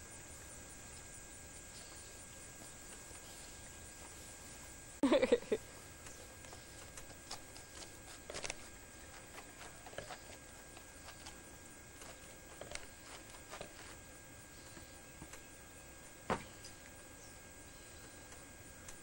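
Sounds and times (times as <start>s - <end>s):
tape hiss: 0.0s - 19.0s
faint footsteps: 5.7s - 15.4s.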